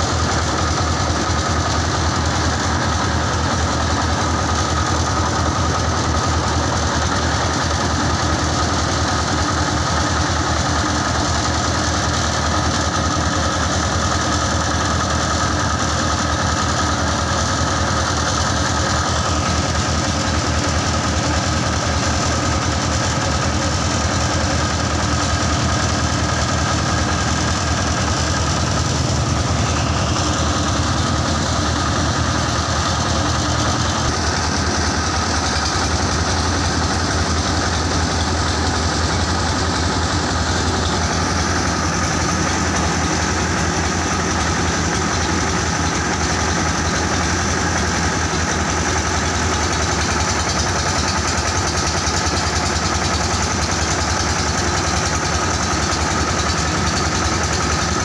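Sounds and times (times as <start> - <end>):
rice hulling machine engine drone: 0.0 - 58.0.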